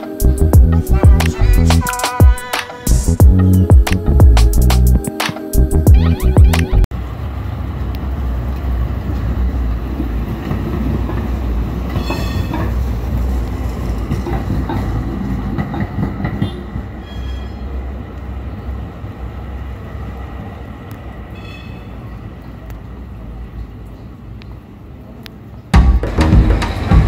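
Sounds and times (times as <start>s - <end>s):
tram wheels squealing: 1.4s - 3.2s, 8.2s - 19.0s, 21.2s - 22.6s, 26.2s - 27.0s
tram rumble with wheel clatter: 5.9s - 27.0s.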